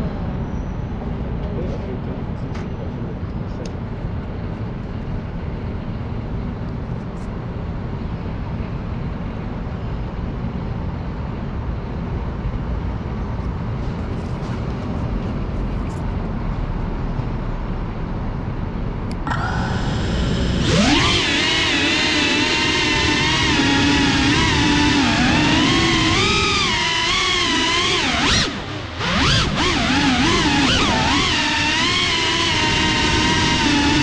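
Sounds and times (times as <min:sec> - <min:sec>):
low rumble of city ambience: 0:00.0 - 0:34.0
drone motors whining: 0:19.1 - 0:34.0.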